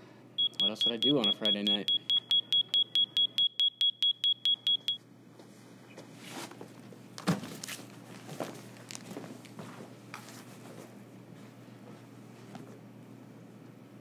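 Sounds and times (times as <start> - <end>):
security gate alarm beeping: 0.4 - 5.0.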